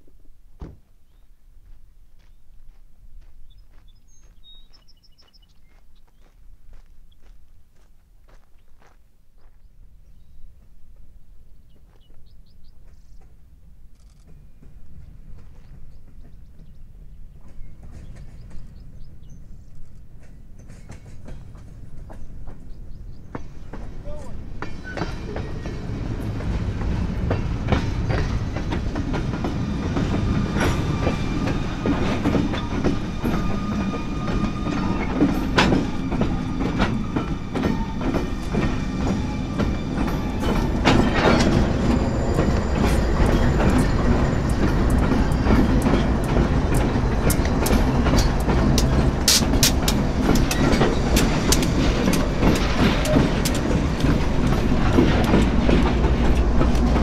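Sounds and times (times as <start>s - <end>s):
freight train rumbling past: 9.8s - 57.0s
wheels clicking over rail joints: 12.8s - 57.0s.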